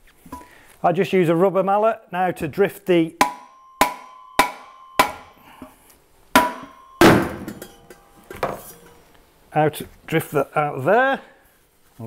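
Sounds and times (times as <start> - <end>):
rubber mallet striking metal: 3.2 - 5.5, 6.4 - 9.0
metal ringing tone: 3.2 - 5.8, 6.4 - 9.1.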